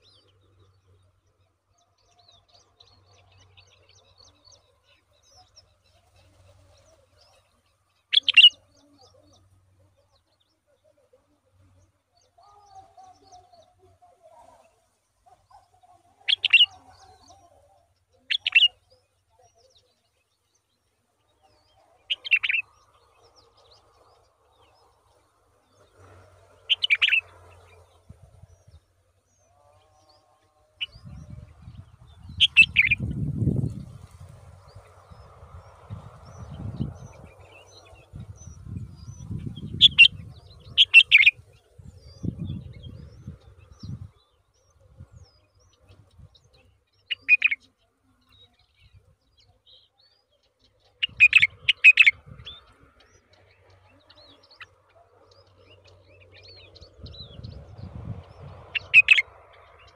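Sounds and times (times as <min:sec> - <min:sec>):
faint bird twittering: 0:02.0 - 0:59.9
bird sharp chirps: 0:08.1 - 0:09.4, 0:16.3 - 0:17.4, 0:18.2 - 0:19.1, 0:22.1 - 0:22.8, 0:25.8 - 0:27.9, 0:32.0 - 0:33.8, 0:36.2 - 0:41.6, 0:46.6 - 0:47.7, 0:50.9 - 0:59.9.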